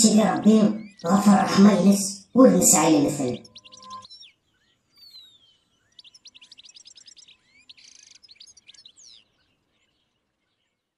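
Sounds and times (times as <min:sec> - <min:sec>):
buzzy bird trill: 0:00.0 - 0:04.3
songbirds chirping: 0:00.0 - 0:10.9.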